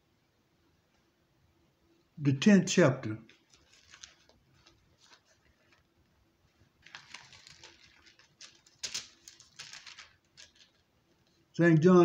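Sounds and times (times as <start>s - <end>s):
paper pages rustling: 3.3s - 11.4s.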